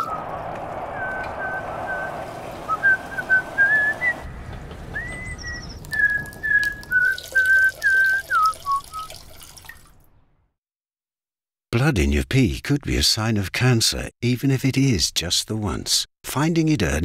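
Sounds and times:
man whistling a tune: 2.7 - 4.3, 4.9 - 9.2.

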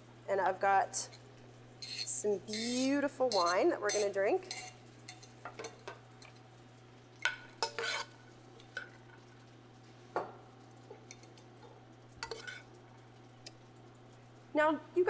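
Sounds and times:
spoons scraping a pan: 1.0 - 6.4, 7.3 - 9.2, 10.9 - 11.6, 12.2 - 12.8
spoons clinking on a plate: 1.8 - 6.4, 7.2 - 8.9, 12.2 - 12.7.

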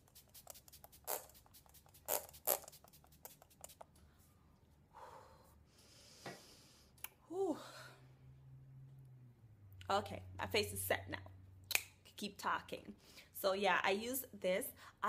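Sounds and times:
spray bottle hissing: 0.0 - 3.8.

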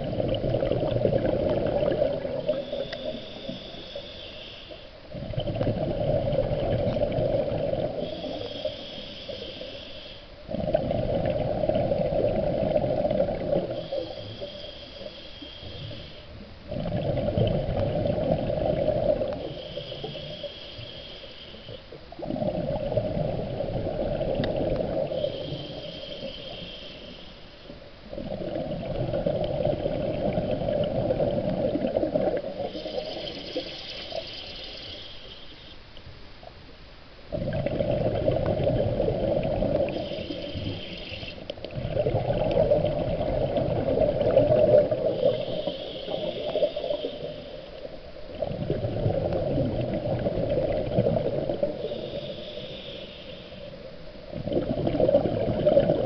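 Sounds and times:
exhaled bubbles rumbling: 0.0 - 3.2, 5.0 - 8.6, 10.4 - 14.2, 15.8 - 20.2, 22.0 - 26.7, 27.7 - 34.5, 37.3 - 52.2, 53.7 - 56.0
regulator valve hiss: 2.4 - 5.0, 7.8 - 10.4, 13.5 - 16.4, 19.4 - 21.9, 24.6 - 27.7, 32.6 - 35.8, 39.8 - 41.5, 45.0 - 48.4, 51.5 - 54.0.

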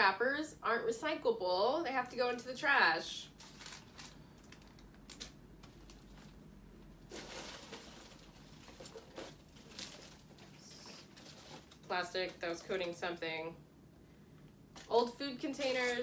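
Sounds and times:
plastic bag rustling: 3.3 - 13.1, 14.8 - 16.0.

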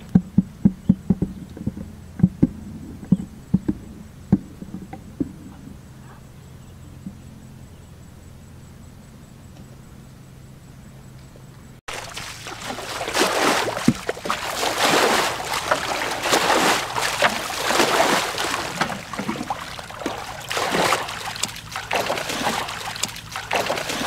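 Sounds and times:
low hum: 0.0 - 24.0
water splashing from bucket: 11.9 - 24.0.

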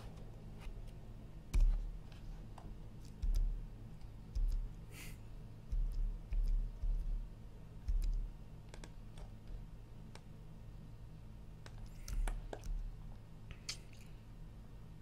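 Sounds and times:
mouse and keyboard clicks: 7.9 - 9.3.

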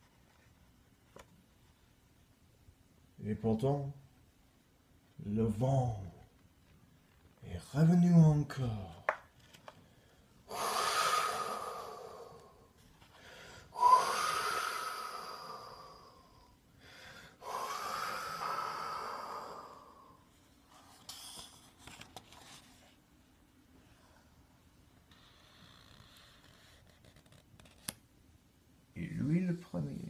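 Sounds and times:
soft rustles: 20.3 - 27.9.

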